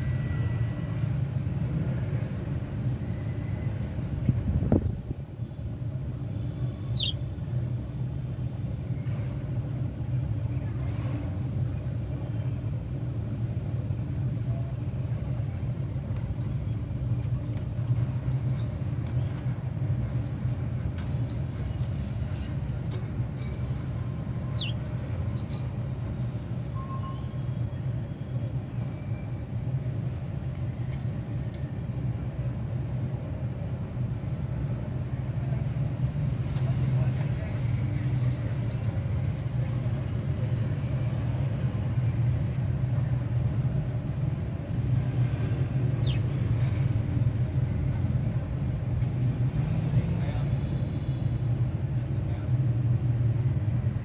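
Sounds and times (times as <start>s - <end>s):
high falling bird chirps: 6.7s - 7.3s, 24.4s - 24.9s, 45.9s - 46.4s.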